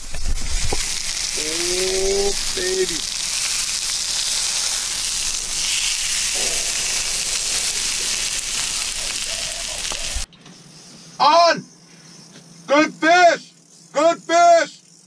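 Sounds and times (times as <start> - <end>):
pizza sizzling in frying pan: 0.0 - 10.3.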